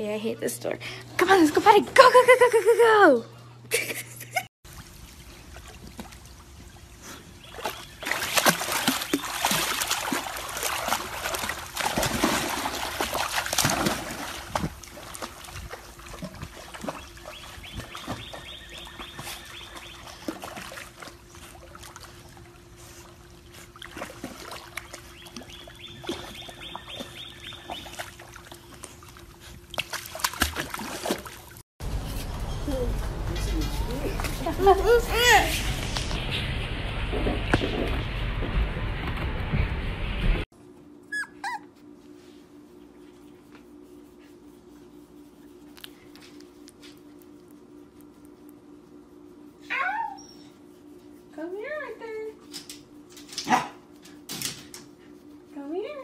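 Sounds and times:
dogs splashing in pool water: 4.7 - 35.8
faint steady hum: 40.6 - 56.0.

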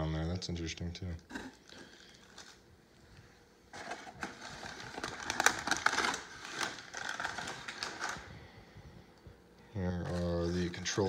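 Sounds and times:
paper and plastic crinkling: 1.6 - 8.6, 10.0 - 11.0.

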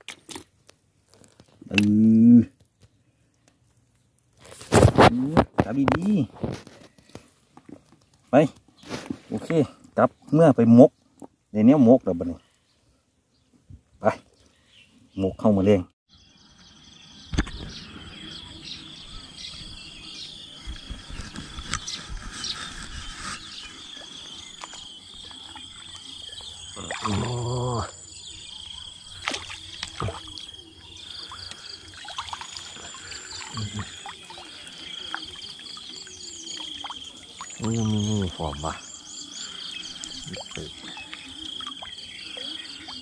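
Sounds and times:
insects and frogs trilling: 14.0 - 43.0
light clicks and chirps: 20.5 - 27.2, 29.0 - 43.0.

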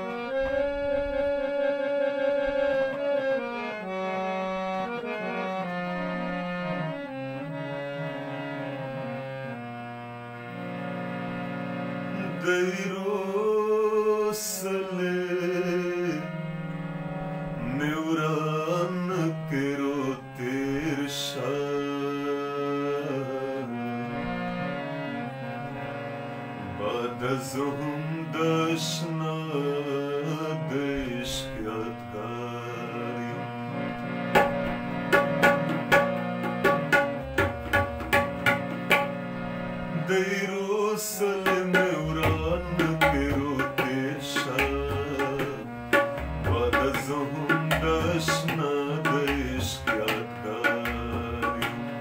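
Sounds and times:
harmonium chords: 0.0 - 52.0
man singing: 12.2 - 16.6, 17.6 - 23.8, 26.6 - 33.8, 39.9 - 52.0.

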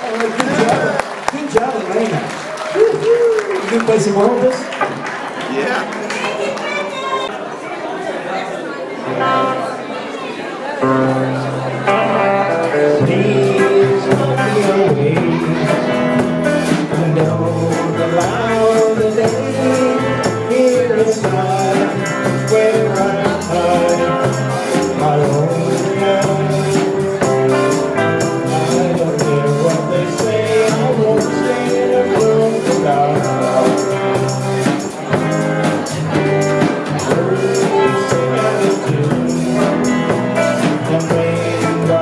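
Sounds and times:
rock and roll band playing: 0.0 - 7.3, 9.1 - 9.8, 10.8 - 42.0
percussion beat: 4.2 - 7.0, 13.0 - 42.0.

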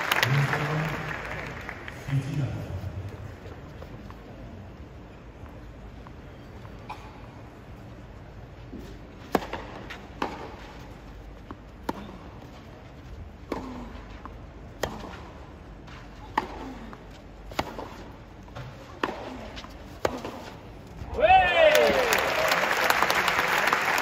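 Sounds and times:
tennis racket striking ball: 9.2 - 10.8, 13.5 - 15.3, 16.2 - 16.8, 17.5 - 20.6.

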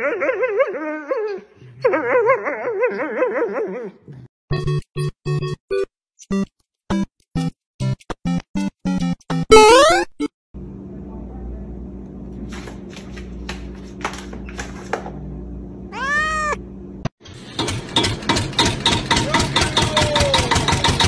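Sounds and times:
cat meowing: 15.9 - 16.6.

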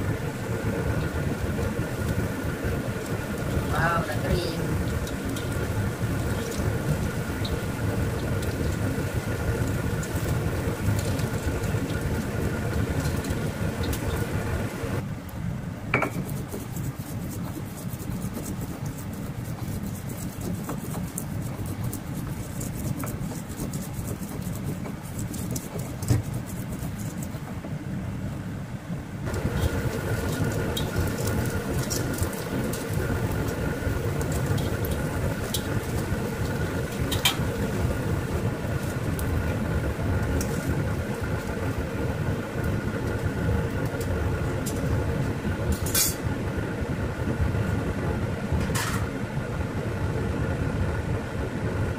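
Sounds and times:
fritters sizzling in hot oil: 0.0 - 15.0, 29.2 - 46.3
steady hum: 0.0 - 51.9
stone pestle grinding in mortar: 16.0 - 27.4.

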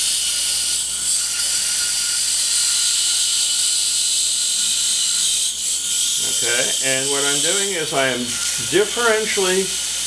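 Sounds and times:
belt grinder grinding blade: 0.0 - 10.0.

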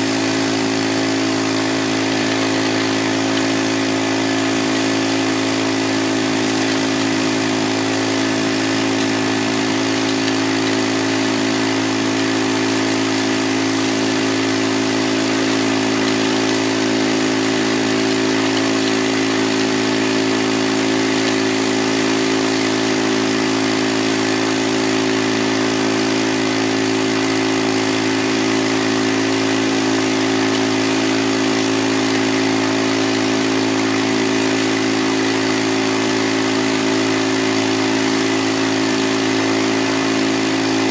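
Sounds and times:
fast creek water rushing: 0.0 - 40.9
small gasoline engine running: 0.0 - 40.9.

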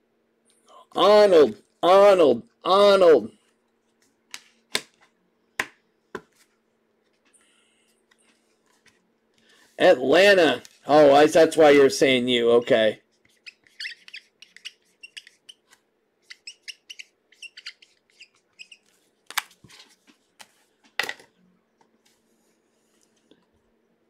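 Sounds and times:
cards clicking and scraping: 13.2 - 20.6.

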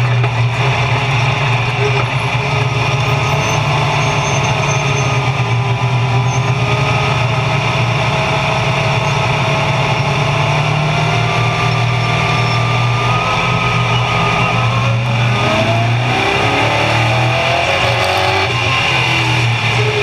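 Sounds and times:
race car engine running: 0.0 - 20.0.

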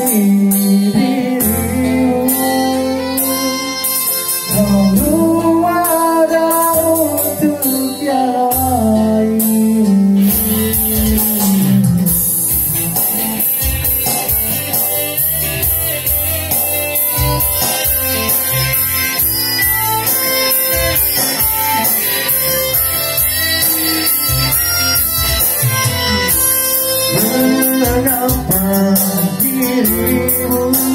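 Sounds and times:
electric guitar: 0.0 - 30.9
electronic keyboard: 0.0 - 30.9
steady beat: 10.2 - 30.9.

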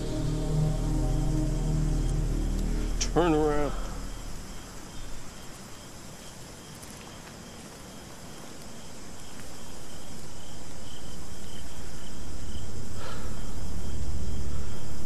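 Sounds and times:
low rumble: 0.0 - 5.7, 12.4 - 15.0
insects chirping: 0.0 - 15.0.

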